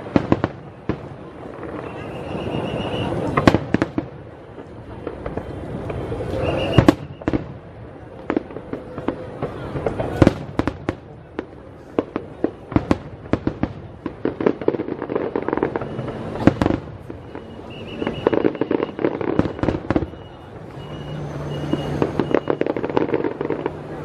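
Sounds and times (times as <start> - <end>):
fireworks bangs and crackling: 0.0 - 24.0.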